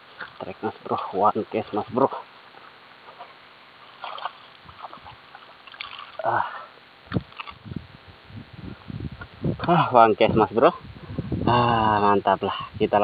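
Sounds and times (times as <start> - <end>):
small water splashes: 3.1 - 7.6.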